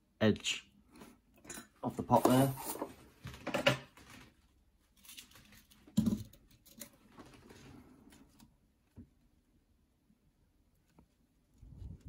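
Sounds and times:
workbench handling noise: 1.4 - 4.3.

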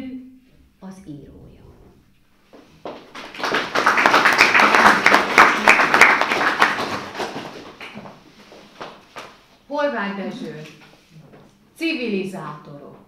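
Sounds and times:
audience applauding: 2.9 - 8.1.

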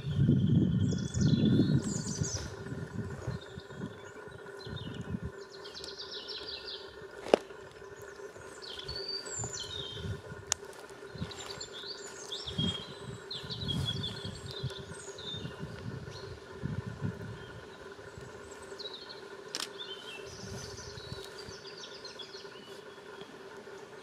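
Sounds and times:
wind gusts on microphone: 0.0 - 5.4, 8.9 - 10.5, 12.4 - 18.4
faint steady hum: 0.0 - 24.0
songbirds singing and chirping: 0.0 - 24.0.

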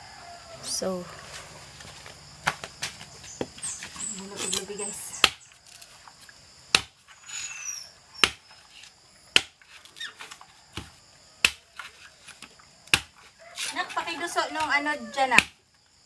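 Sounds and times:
machete chopping coconut husk: 5.1 - 5.8, 6.7 - 7.0, 8.2 - 8.5, 9.3 - 12.0, 12.8 - 13.8, 14.6 - 15.6.

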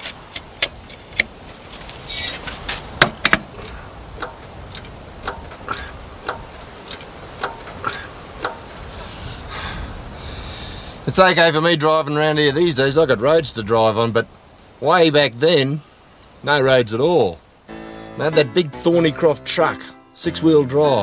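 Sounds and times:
hydraulic jack pump clicking: 3.0 - 8.8
metal clicks and clanks: 3.0 - 8.8.

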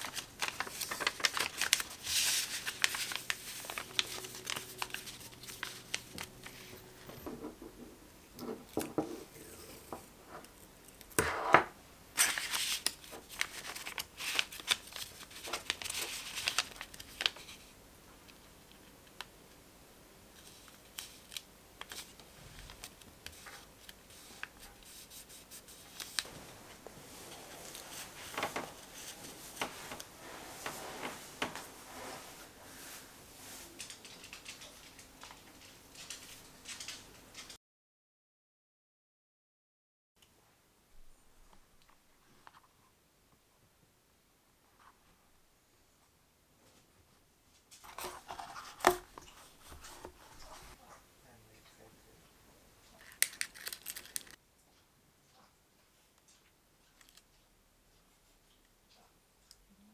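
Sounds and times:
paper envelope rustling and crinkling: 0.0 - 7.2, 12.2 - 17.7, 20.4 - 37.5, 47.8 - 50.8, 53.0 - 54.4.

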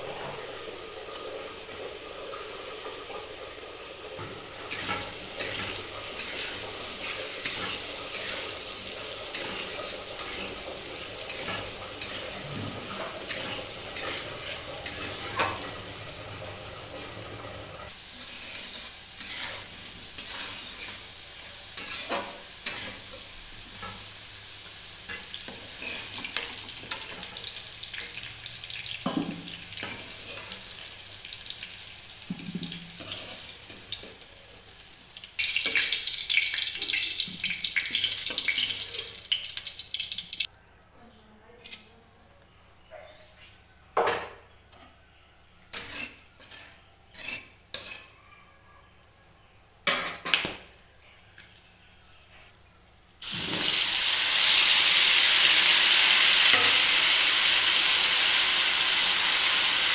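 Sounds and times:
potatoes sizzling in oil: 0.0 - 40.5, 45.7 - 48.2, 53.2 - 59.9
metal spatula scraping pan: 7.3 - 15.8, 18.2 - 21.1, 21.8 - 23.1, 45.7 - 48.2.

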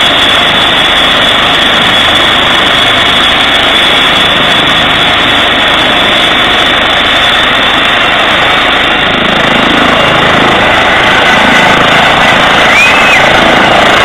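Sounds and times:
helicopter turbine and rotor noise: 0.0 - 14.0
high turbine whine: 0.0 - 14.0.

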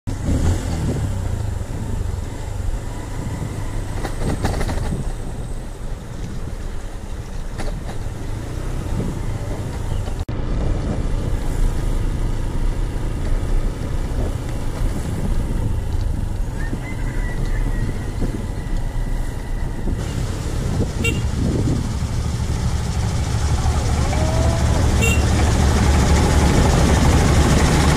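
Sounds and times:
wind rumbling on microphone: 0.1 - 27.9
motorbike engine running: 12.0 - 27.9.

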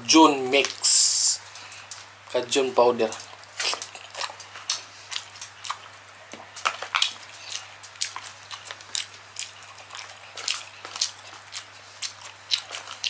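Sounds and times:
faint low hum: 0.0 - 13.0
wet chewing and lip smacking: 0.5 - 13.0.

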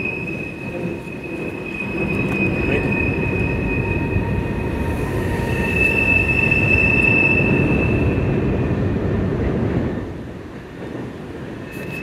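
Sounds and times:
high wheel squeal: 0.0 - 8.6, 11.6 - 12.0
train wheels rumbling on rail: 0.0 - 12.0.

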